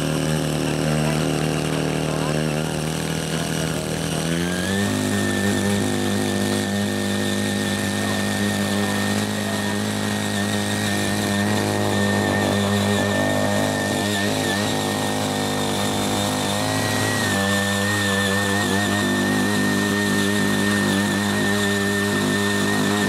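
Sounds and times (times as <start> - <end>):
tiller engine running under load: 0.0 - 23.0
tines churning clay: 0.0 - 23.0.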